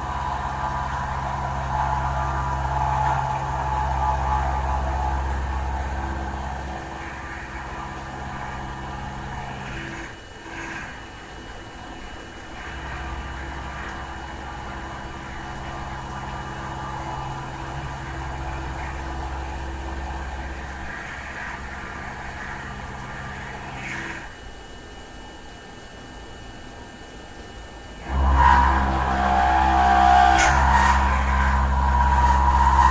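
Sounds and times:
cutting and coolant hiss: 0:00.0 - 0:24.4
machine hum: 0:00.0 - 0:32.9.

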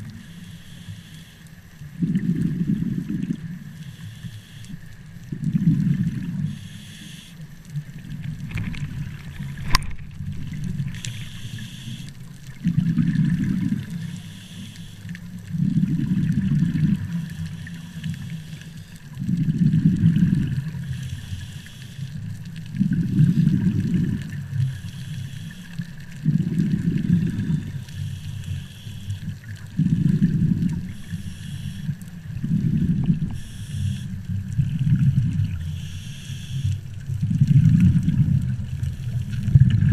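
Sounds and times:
regulator hiss on inhale: 0:00.0 - 0:05.2, 0:05.9 - 0:07.6, 0:10.7 - 0:12.3, 0:13.4 - 0:19.1, 0:20.1 - 0:22.4, 0:23.2 - 0:34.3, 0:35.6 - 0:36.9
bubbling on exhale: 0:02.0 - 0:03.6, 0:05.3 - 0:07.3, 0:08.0 - 0:21.5, 0:22.5 - 0:39.9.

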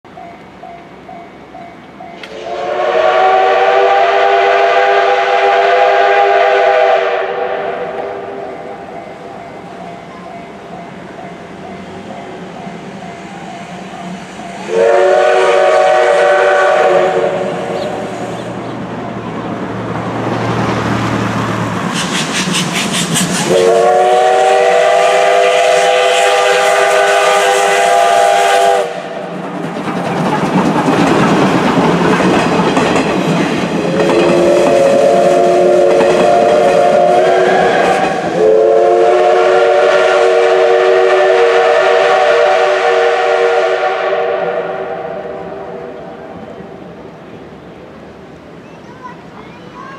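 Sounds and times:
locomotive exhaust and steam rush: 0:00.0 - 0:49.9
steam whistle blasts: 0:02.2 - 0:09.0, 0:14.4 - 0:18.4, 0:22.0 - 0:29.2, 0:33.8 - 0:46.0.

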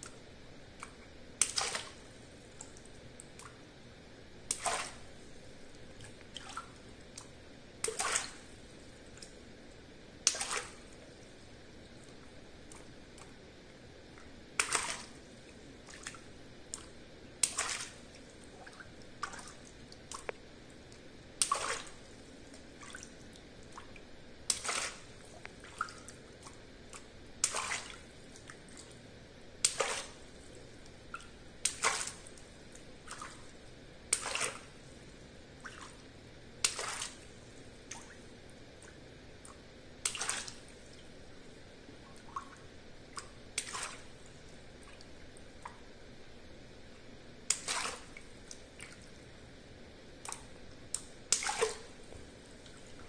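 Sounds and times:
water splashing: 0:00.8 - 0:03.6, 0:04.5 - 0:05.1, 0:06.0 - 0:09.3, 0:10.2 - 0:11.1, 0:14.6 - 0:20.3, 0:21.4 - 0:28.9, 0:29.6 - 0:34.8, 0:36.6 - 0:41.1, 0:42.0 - 0:44.2, 0:47.5 - 0:49.2, 0:50.2 - 0:53.0.

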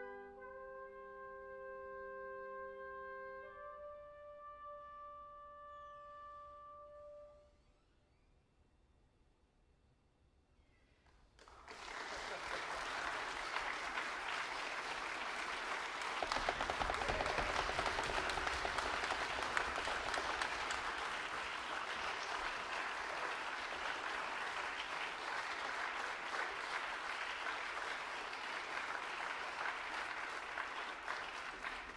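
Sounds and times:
audience applauding: 0:11.4 - 0:31.9.

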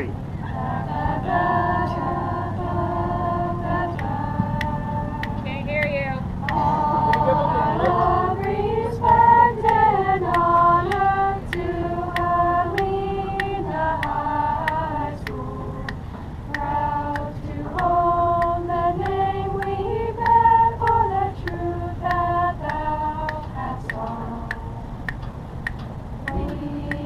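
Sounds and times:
group singing a cappella: 0:00.0 - 0:25.3, 0:26.2 - 0:27.0
steady tick: 0:07.8 - 0:27.0.

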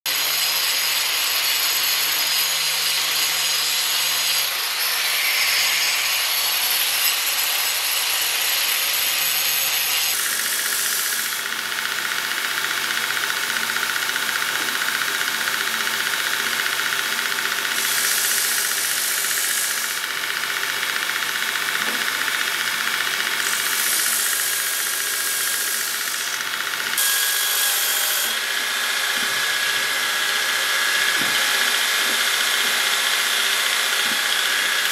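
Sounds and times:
angle grinder cutting steel: 0:00.1 - 0:34.9
belt grinder grinding steel: 0:00.1 - 0:34.9.

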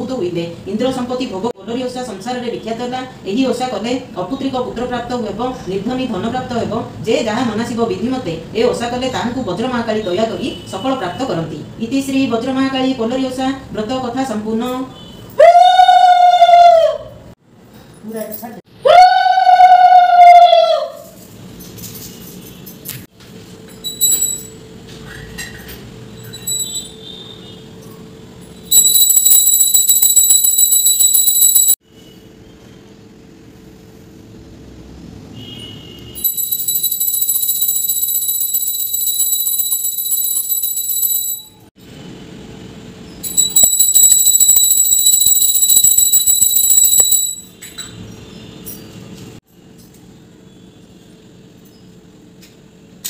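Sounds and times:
hand bell ringing rapidly: 0:23.8 - 0:24.5, 0:28.7 - 0:31.8, 0:36.2 - 0:41.6, 0:43.2 - 0:47.6.

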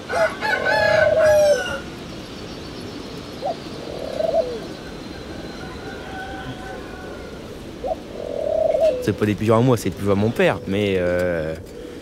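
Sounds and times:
faint rooster calls: 0:00.0 - 0:01.9, 0:04.0 - 0:09.1
rooster crowing: 0:00.0 - 0:01.9, 0:04.8 - 0:07.6.

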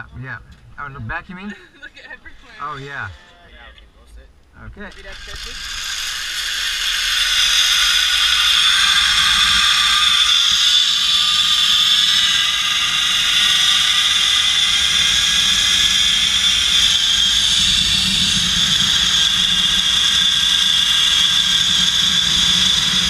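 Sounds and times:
pulley wheels whining on cable: 0:04.8 - 0:23.0.

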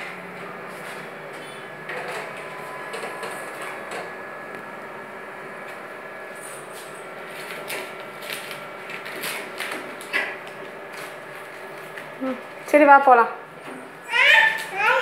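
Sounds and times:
steady background hum: 0:00.0 - 0:15.0
banknotes rustling and clicking: 0:07.3 - 0:12.1.

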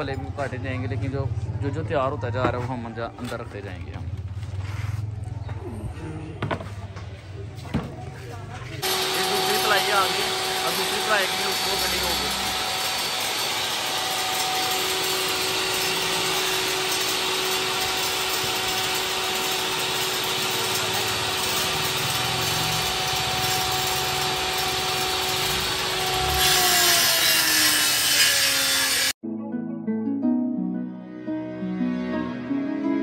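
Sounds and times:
power saw cutting wood: 0:08.8 - 0:29.2.

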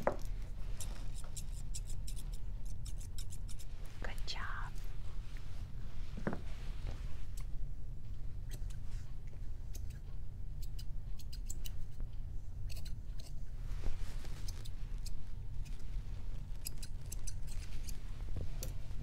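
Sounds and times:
grooming shears snipping fur: 0:00.0 - 0:03.8, 0:08.4 - 0:19.0.

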